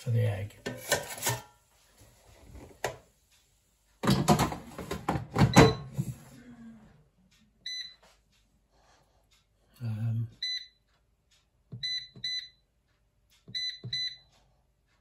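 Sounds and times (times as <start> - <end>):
air fryer basket scraping: 0.6 - 1.5.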